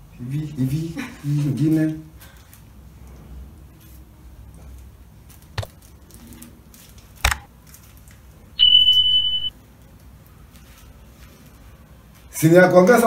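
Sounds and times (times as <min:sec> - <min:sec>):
high beep: 0:08.6 - 0:09.5.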